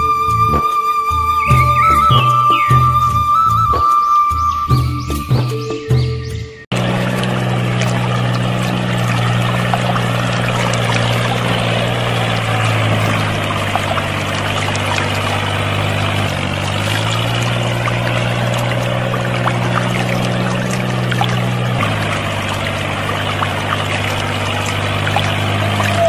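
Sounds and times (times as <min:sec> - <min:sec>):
small motor humming: 0:06.7 - 0:26.0
water pouring into puddle: 0:06.7 - 0:26.0.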